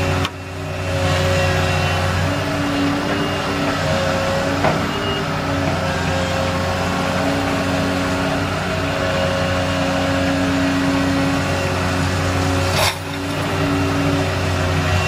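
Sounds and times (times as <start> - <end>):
excavator diesel engine: 0.0 - 15.0
hydraulic whine: 11.0 - 15.0.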